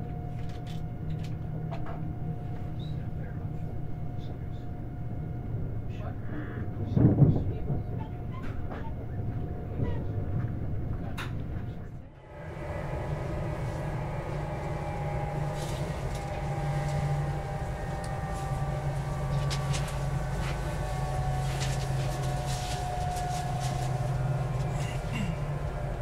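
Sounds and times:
wheels rumbling on rails: 0:05.4 - 0:26.0
train inverter tones: 0:11.6 - 0:26.0.

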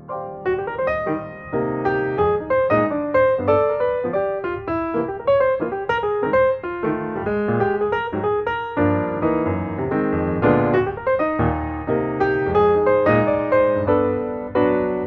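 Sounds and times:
piano music: 0:00.0 - 0:15.0.

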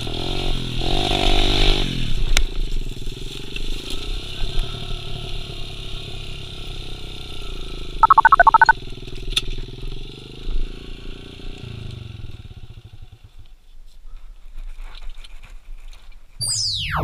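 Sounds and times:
electronic swoosh: 0:16.4 - 0:17.0.

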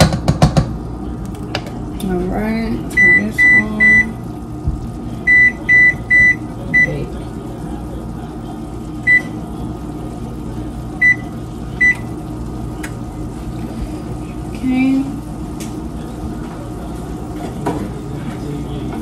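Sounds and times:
steady low hum: 0:00.0 - 0:19.0
microwave keypad beeps: 0:03.0 - 0:04.2, 0:05.3 - 0:07.0, 0:09.0 - 0:09.4, 0:11.0 - 0:12.1.

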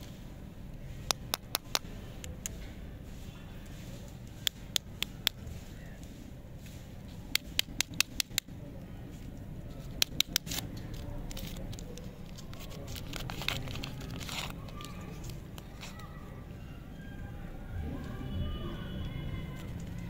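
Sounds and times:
plastic wrapper crinkling: 0:09.7 - 0:16.2.

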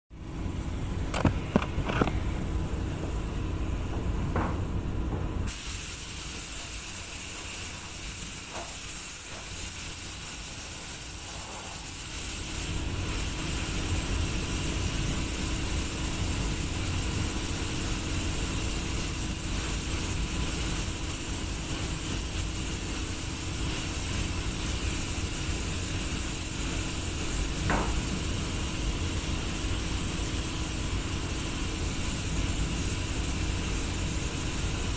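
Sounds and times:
paint spray gun hissing: 0:05.5 - 0:34.9.

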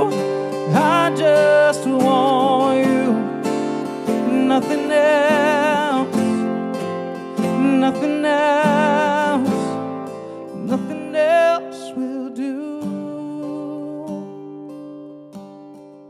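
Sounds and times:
men singing with vibrato: 0:00.0 - 0:09.9, 0:10.6 - 0:13.4
acoustic guitars strumming: 0:00.0 - 0:16.0.

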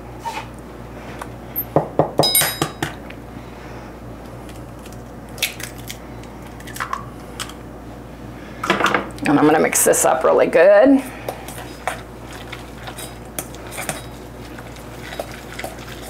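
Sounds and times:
short metallic ring: 0:02.2 - 0:02.8
egg clinking on metal bowl: 0:02.2 - 0:02.9.

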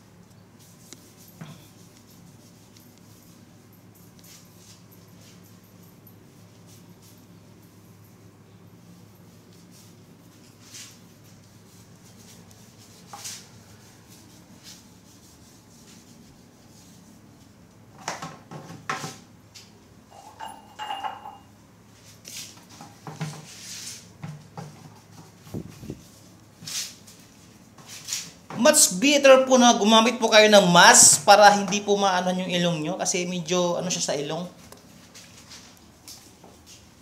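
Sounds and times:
faint room hum: 0:00.0 - 0:37.0
hand rubbing ceramic toilet bowl: 0:20.1 - 0:21.5.

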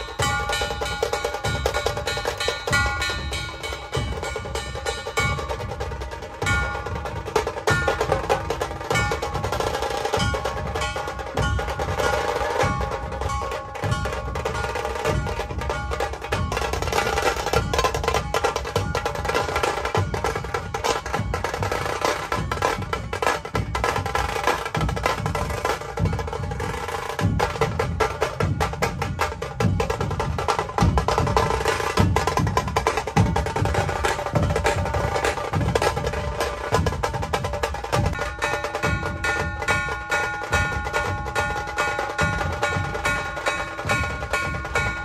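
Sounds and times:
music with fast dense drumming: 0:00.0 - 0:45.0.

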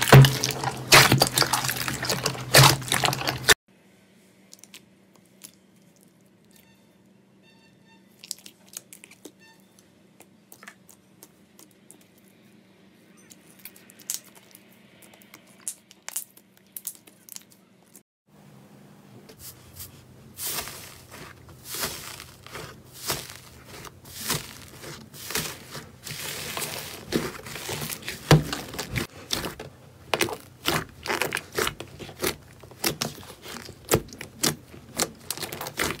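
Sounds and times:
slime crackling and popping: 0:00.0 - 0:03.6, 0:20.4 - 0:36.0
slime squelching: 0:00.0 - 0:03.6, 0:19.3 - 0:36.0.

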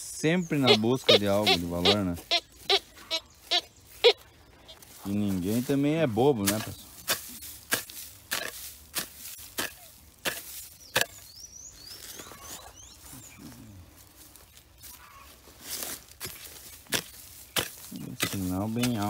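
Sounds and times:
digging tool chopping into soil: 0:06.4 - 0:11.3, 0:16.2 - 0:19.0.

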